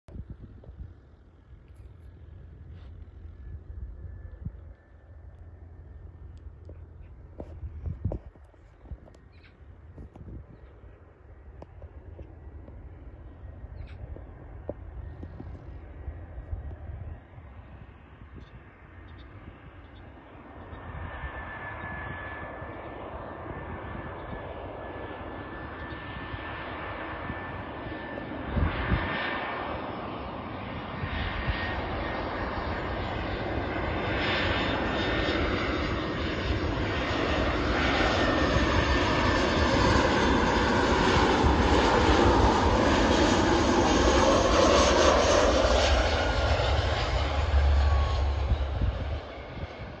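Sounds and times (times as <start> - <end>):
jet airliner engines: 0.1 - 50.0
falling engine whine: 29.9 - 50.0.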